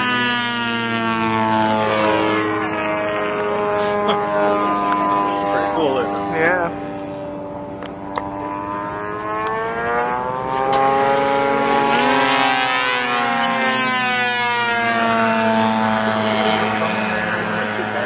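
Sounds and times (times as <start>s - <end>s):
model airplane engine buzzing: 0.0s - 18.0s.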